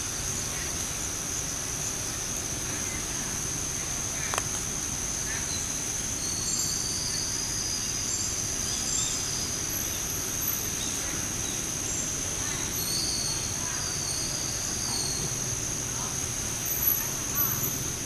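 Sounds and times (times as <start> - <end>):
high-pitched insect drone: 5.0 - 18.0.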